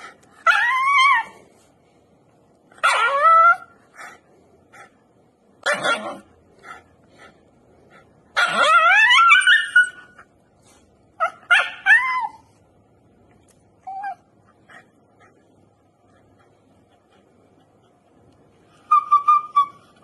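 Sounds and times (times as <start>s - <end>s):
dog yelping: 0.4s - 1.3s, 2.8s - 3.7s, 5.6s - 6.3s, 8.4s - 10.3s, 11.2s - 12.5s, 13.8s - 14.3s, 18.7s - 20.0s
dog whining: 0.4s - 1.4s, 2.8s - 3.8s, 8.4s - 10.3s, 11.2s - 12.6s, 13.8s - 14.8s, 18.7s - 20.0s.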